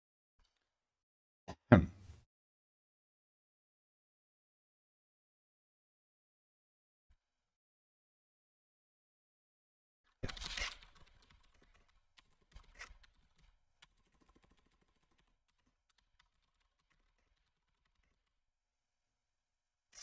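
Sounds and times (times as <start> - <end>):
typing on computer keyboard: 10.2 - 18.4.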